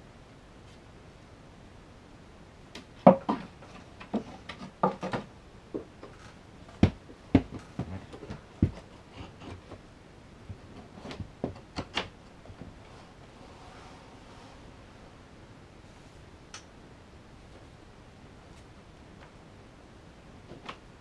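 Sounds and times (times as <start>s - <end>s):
knocks and clacks on wood: 3.0s - 5.9s, 6.7s - 9.8s.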